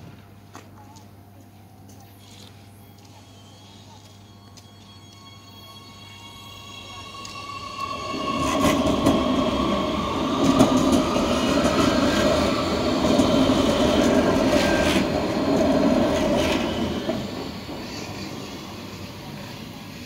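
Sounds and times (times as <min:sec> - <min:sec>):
train wheels rumbling on rails: 0:04.0 - 0:20.0.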